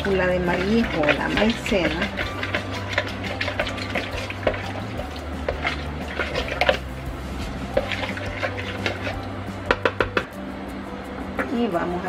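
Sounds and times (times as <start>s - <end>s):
spoon stirring liquid in bowl: 0.0s - 10.2s
spoon tapping plastic bowl: 9.7s - 10.3s.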